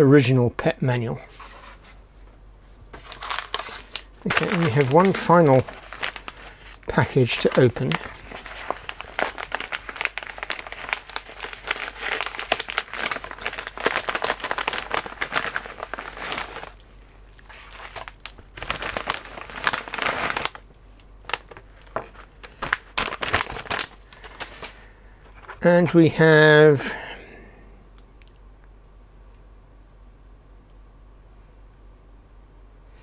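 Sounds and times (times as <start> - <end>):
packaging crinkling and rustling: 2.9 - 26.0.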